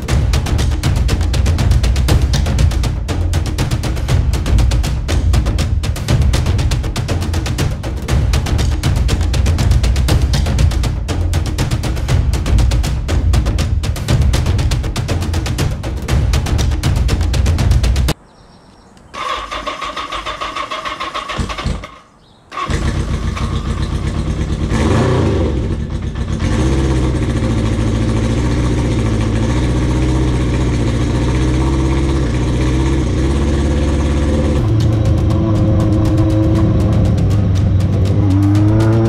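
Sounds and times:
electric starter cranking: 0:19.2 - 0:23.9
motorcycle engine revving and idling: 0:19.2 - 0:39.0.

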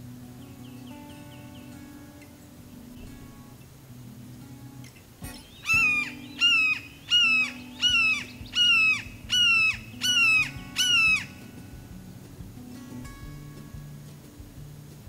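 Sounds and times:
hawk calling: 0:05.2 - 0:12.0.

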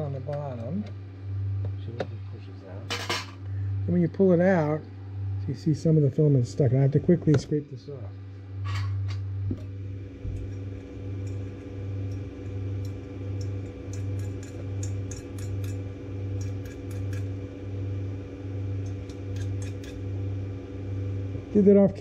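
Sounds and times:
cooling fans humming: 0:00.0 - 0:22.0.

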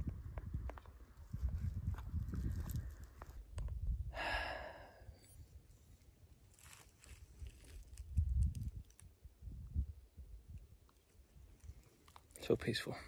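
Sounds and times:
heavy breathing: 0:04.1 - 0:05.3.

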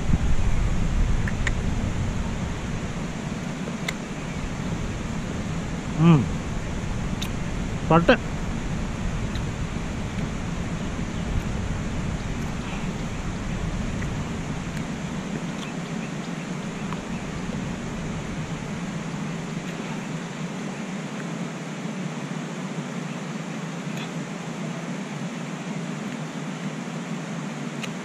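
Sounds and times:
wind rumble on microphone: 0:00.0 - 0:20.6
steady rushing noise: 0:00.0 - 0:23.0.

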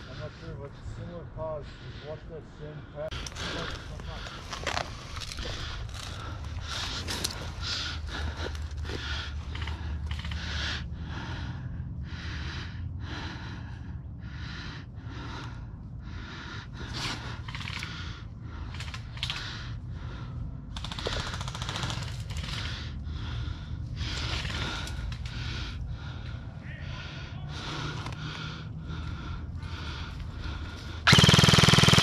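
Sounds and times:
airsoft guns firing bursts: 0:20.8 - 0:22.6, 0:31.1 - 0:32.0.

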